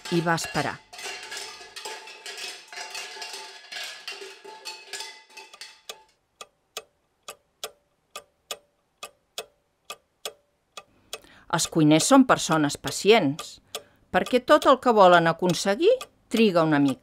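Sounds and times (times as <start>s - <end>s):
metal pots clanging: 0.0s - 6.2s
clock ticking: 5.3s - 17.0s.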